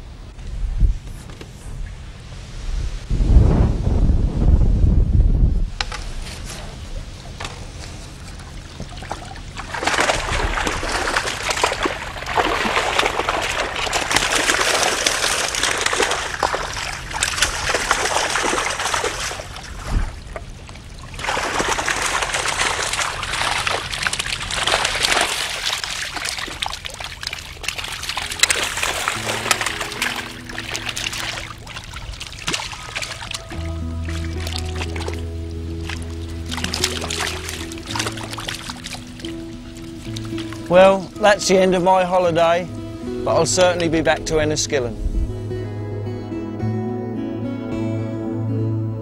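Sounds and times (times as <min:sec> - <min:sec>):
water pouring and splashing: 0:05.8 - 0:41.7
fish thrashing and splashing: 0:06.4 - 0:40.8.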